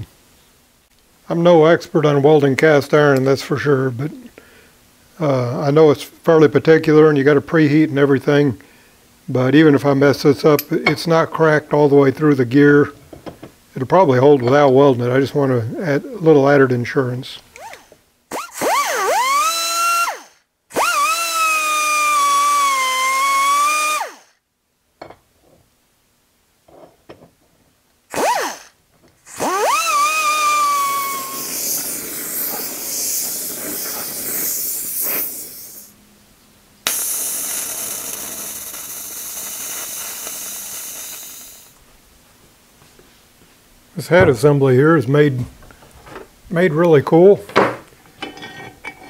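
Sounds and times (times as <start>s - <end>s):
die grinder whining: 17.6s - 24.3s, 28.1s - 35.8s, 36.9s - 41.8s
gas welding torch hissing: 28.1s - 36.0s, 36.8s - 41.8s.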